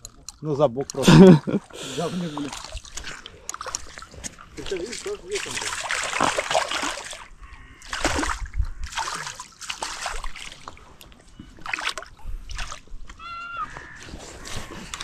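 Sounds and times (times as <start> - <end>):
fish splashing at water surface: 1.6 - 10.8.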